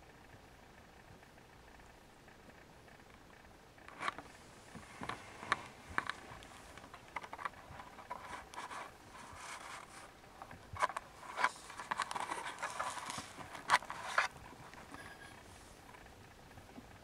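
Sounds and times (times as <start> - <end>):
kittens' claws scratching carpet: 3.9 - 16.0.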